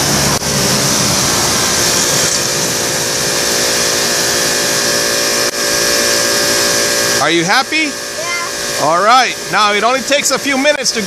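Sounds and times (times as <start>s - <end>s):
pressure washer jet hissing: 0.0s - 11.0s
pump motor humming: 0.0s - 11.0s.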